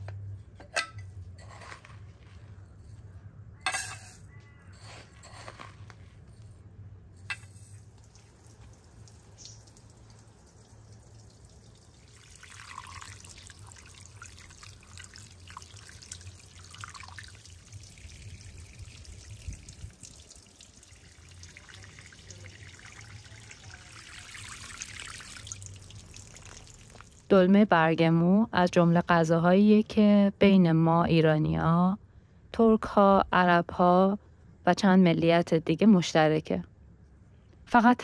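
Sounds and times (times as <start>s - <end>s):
water spraying from hose into pot: 7.8s - 27.3s.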